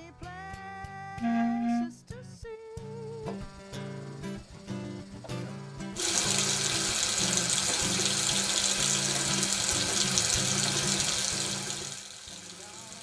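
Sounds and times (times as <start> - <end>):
music playing: 2.8 - 13.0
water pouring into bathtub: 6.0 - 13.0.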